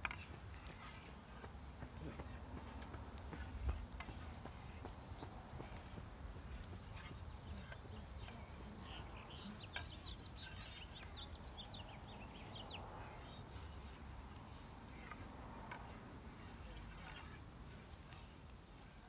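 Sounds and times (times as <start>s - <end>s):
low wind rumble: 0.0s - 19.0s
bird chirping: 4.7s - 14.0s.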